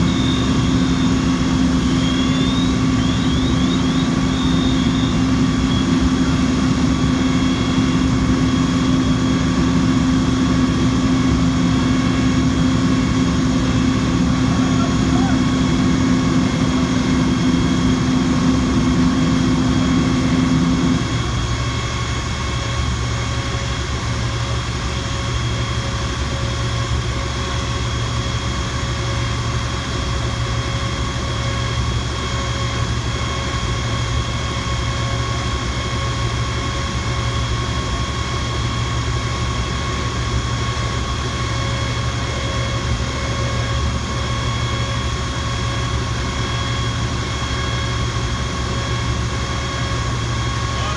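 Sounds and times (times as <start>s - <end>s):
fire engine droning: 0.0s - 50.9s
high pump whine: 0.0s - 50.9s.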